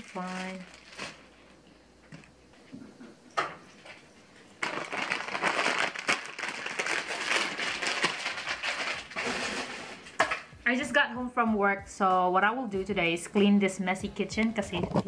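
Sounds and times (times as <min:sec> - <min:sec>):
plastic bag crinkling: 0:00.0 - 0:01.6, 0:04.6 - 0:10.2.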